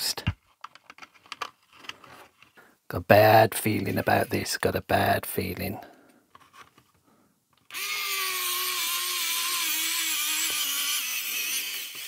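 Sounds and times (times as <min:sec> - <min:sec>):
electric screwdriver motor whine: 0:07.7 - 0:12.0.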